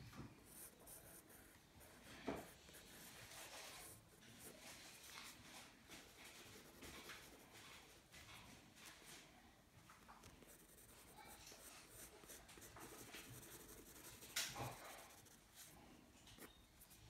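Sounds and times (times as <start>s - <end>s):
pencil sketching on paper: 0.4s - 8.0s, 10.4s - 15.8s.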